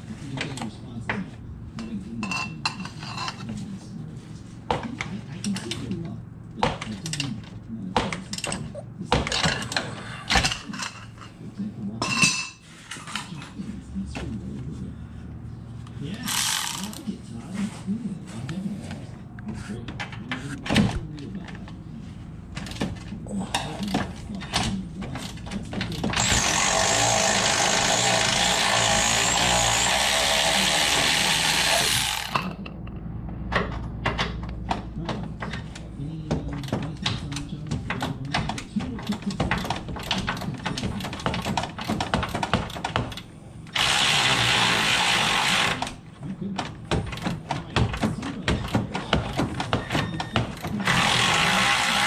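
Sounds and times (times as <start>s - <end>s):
cordless power tool running: 26.2s - 32.4s, 43.7s - 45.9s, 50.8s - 52.0s
sharp clicks and knocks: 32.3s - 44.2s, 45.5s - 51.2s.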